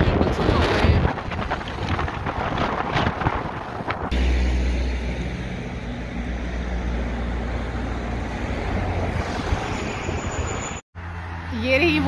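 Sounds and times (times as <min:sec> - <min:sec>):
wind buffeting microphone: 0:00.0 - 0:04.2.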